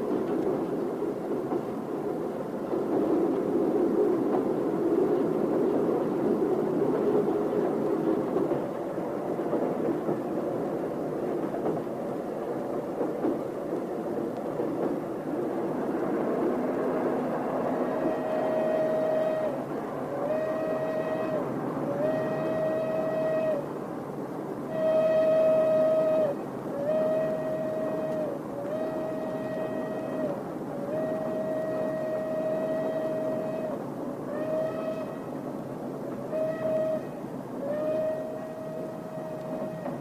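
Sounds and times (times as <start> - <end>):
train rumbling on rails: 0.0 - 40.0
long held horn notes: 17.7 - 23.7, 24.6 - 35.4, 36.2 - 40.0.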